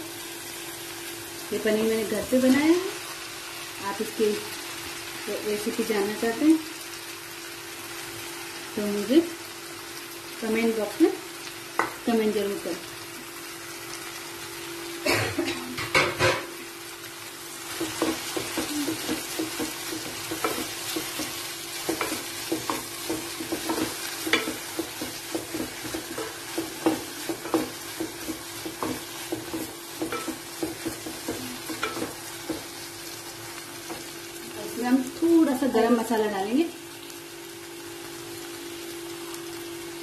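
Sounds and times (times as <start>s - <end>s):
steady sizzle: 0.0s - 40.0s
spatula knocking against pot: 17.8s - 32.7s
wooden spatula stirring in pot: 17.8s - 32.8s.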